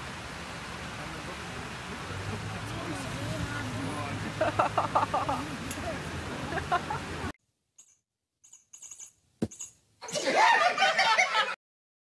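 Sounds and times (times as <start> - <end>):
outdoor background noise with voice: 0.2 - 7.3.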